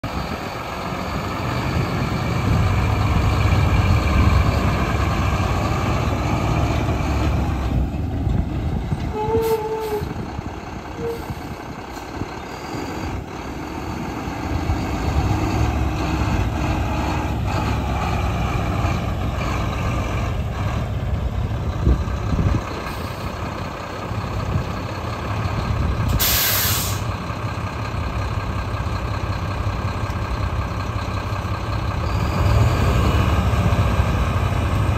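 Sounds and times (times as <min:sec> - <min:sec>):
diesel truck engine running: 0:00.0 - 0:34.9
air brakes hissing: 0:26.1 - 0:27.2.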